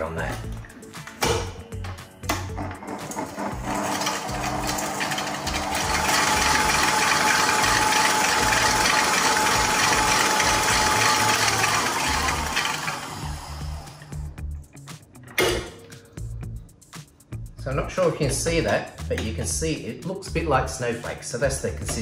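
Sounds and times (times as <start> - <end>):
electric stand mixer whisking: 2.7 - 14.2.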